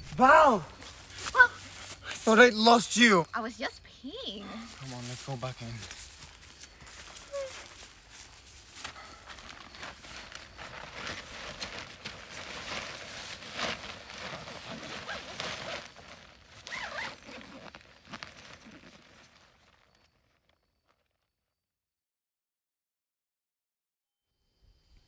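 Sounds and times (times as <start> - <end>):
footsteps: 0.0 - 3.3, 4.2 - 20.0
rustling and scuffing: 0.0 - 3.3, 4.3 - 20.6.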